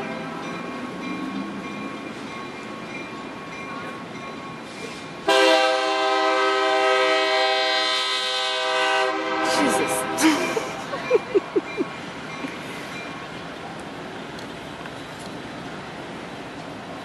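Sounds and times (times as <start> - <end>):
freight train rolling by: 0.0 - 17.0
locomotive air horn: 5.3 - 10.2.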